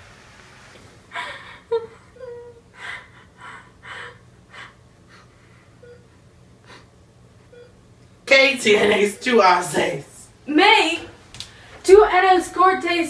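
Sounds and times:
girl sobbing: 0:01.1 - 0:04.8.

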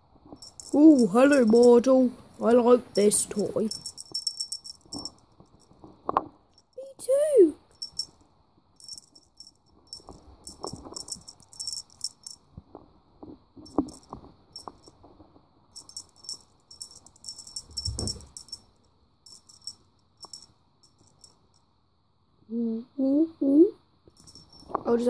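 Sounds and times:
small bell jingling: 0:00.4 - 0:05.8, 0:07.6 - 0:08.2, 0:08.8 - 0:12.5, 0:13.6 - 0:15.0, 0:15.7 - 0:21.6, 0:24.1 - 0:25.0.

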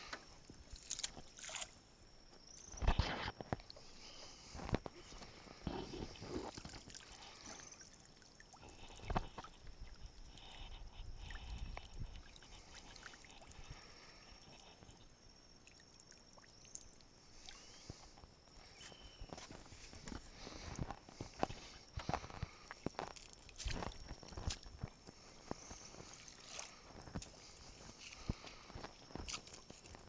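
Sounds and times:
water dripping and trickling: 0:15.6 - 0:17.6.

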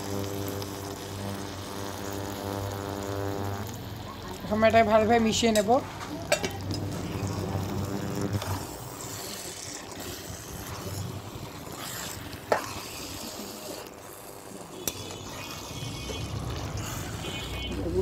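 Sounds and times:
pickle sizzling in oil: 0:00.0 - 0:18.0
spatula stirring in pan: 0:08.4 - 0:18.0.

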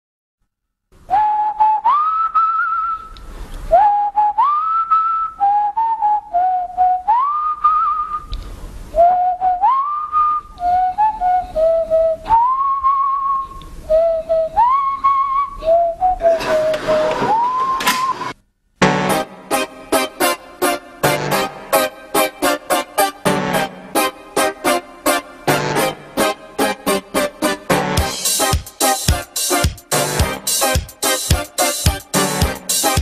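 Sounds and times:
person whistling a tune: 0:01.0 - 0:18.2.

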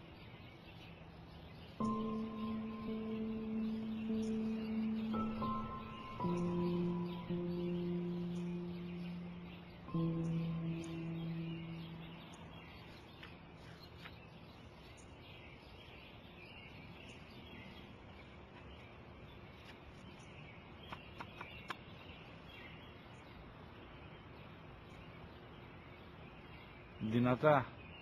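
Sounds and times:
small birds chirping faintly: 0:00.0 - 0:28.0.

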